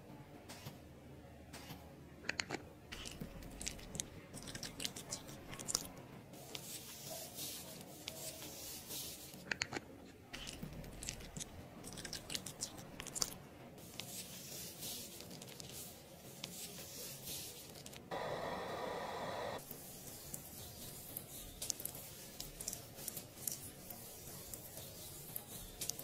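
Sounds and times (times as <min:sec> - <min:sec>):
loud steady hiss: 0:18.1 - 0:19.6.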